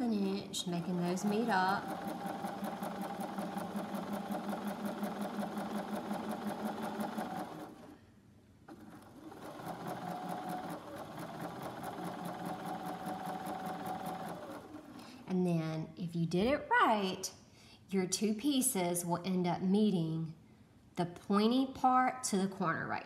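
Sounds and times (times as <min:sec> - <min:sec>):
sewing machine stitching: 0:00.0 - 0:08.0, 0:08.7 - 0:15.3.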